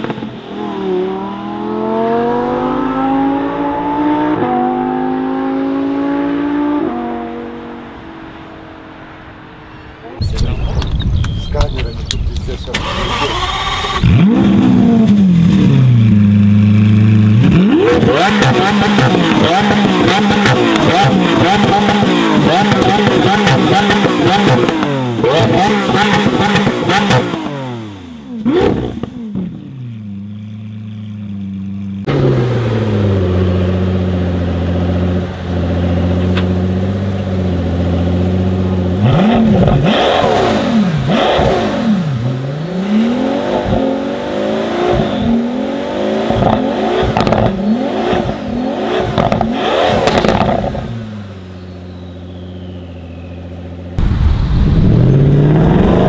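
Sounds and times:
car engine revving: 0.0s - 10.2s, 11.2s - 56.0s
car engine idling: 27.8s - 39.1s, 51.0s - 56.0s.

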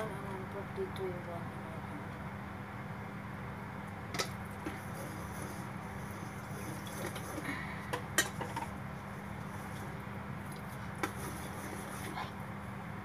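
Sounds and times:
whisk stirring thick batter: 4.5s - 7.6s, 8.4s - 12.4s.

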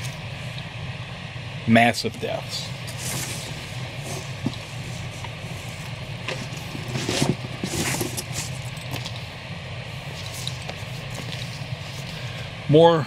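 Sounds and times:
steady low hum: 0.0s - 13.0s
paper and cardboard rustling: 2.9s - 9.2s, 10.1s - 12.2s.

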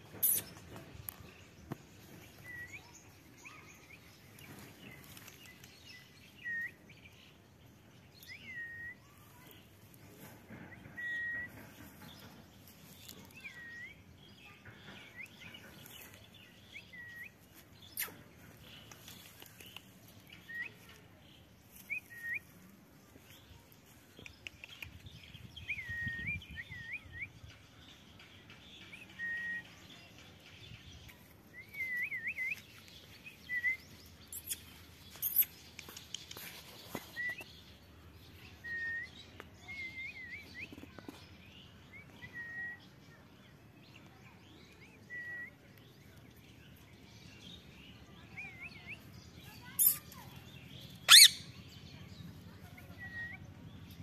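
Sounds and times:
parakeets chirping: 51.0s - 51.5s
parakeet screech: 51.1s - 51.3s.

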